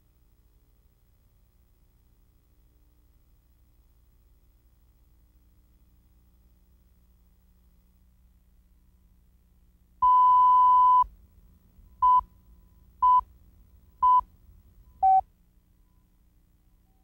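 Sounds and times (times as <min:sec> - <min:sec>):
short countdown beeps: 0:10.0 - 0:11.0, 0:12.0 - 0:12.3, 0:13.0 - 0:13.2, 0:14.0 - 0:14.2, 0:14.9 - 0:15.2.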